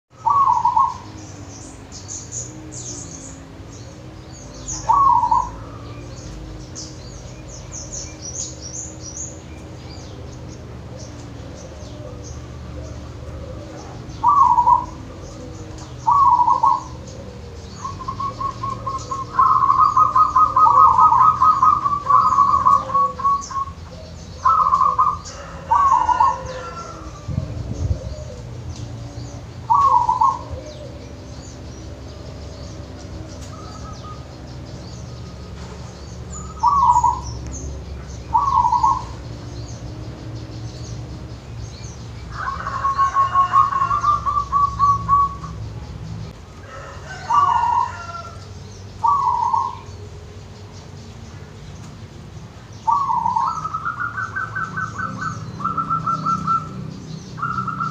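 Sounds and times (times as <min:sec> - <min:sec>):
dove cooing: 0:00.1 - 0:41.7, 0:42.3 - 0:48.4, 0:49.0 - 0:50.0, 0:52.9 - 0:57.9
pulsed trill of coos: 0:00.2 - 0:09.4, 0:10.0 - 0:32.2, 0:42.3 - 0:45.6.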